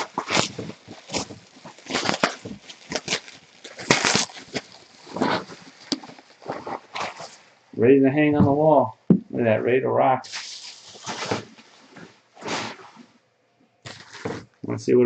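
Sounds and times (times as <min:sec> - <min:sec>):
bubble wrap crinkling: 0:00.0 - 0:07.8, 0:10.2 - 0:13.1, 0:13.8 - 0:14.6.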